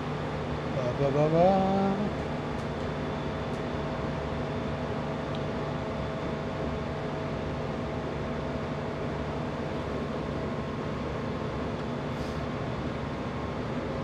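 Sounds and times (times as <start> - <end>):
low engine hum: 0.0 - 6.6
train carriage running noise: 0.0 - 14.0.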